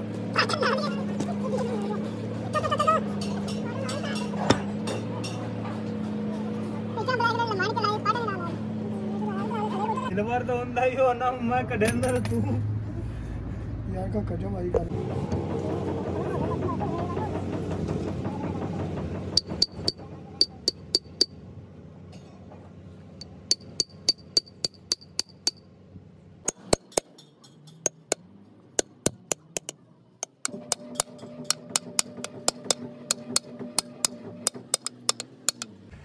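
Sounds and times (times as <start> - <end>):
hammer tapping on metal: 19.4 - 21.3, 23.2 - 25.6, 26.5 - 28.2, 28.8 - 35.7.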